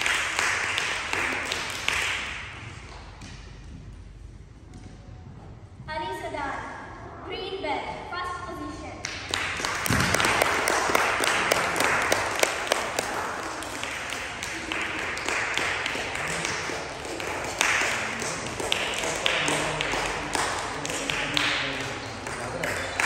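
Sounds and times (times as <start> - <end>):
small audience applauding: 0.0 - 3.0, 9.0 - 23.0.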